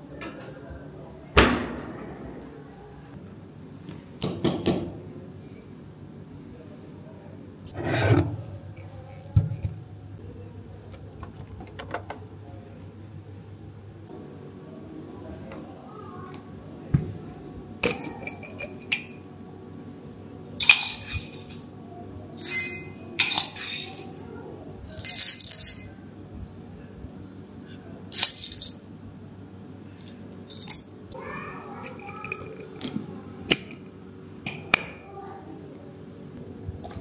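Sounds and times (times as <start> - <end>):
coffee beans rattling in metal scoop: 28.1 - 28.8.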